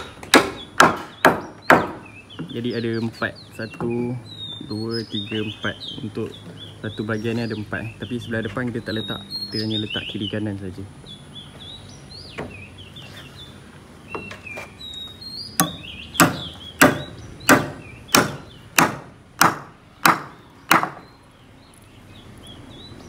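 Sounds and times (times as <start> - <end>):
hammer striking timber: 0.0 - 2.2, 15.6 - 21.1
birds chirping: 0.0 - 23.0.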